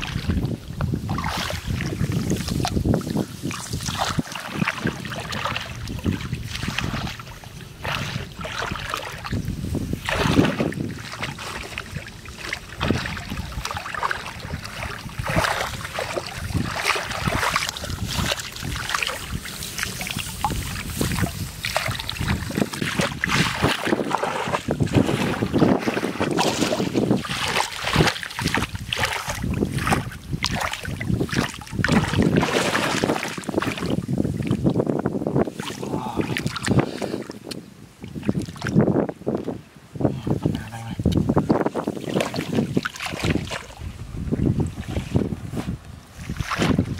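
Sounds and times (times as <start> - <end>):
shallow water splashing: 0.0 - 39.4, 40.8 - 46.9.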